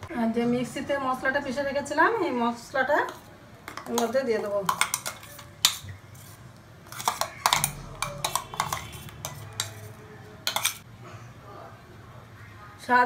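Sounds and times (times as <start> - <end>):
metal spoon scraping a jar: 3.0 - 10.8.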